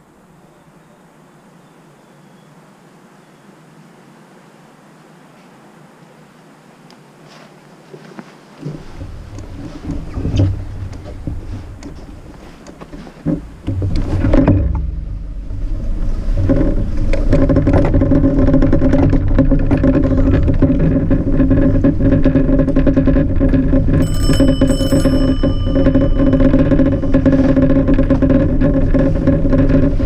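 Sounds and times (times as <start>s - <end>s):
bike rumbling over packed snow: 8.4s - 30.0s
bicycle bell ringing: 24.0s - 27.8s.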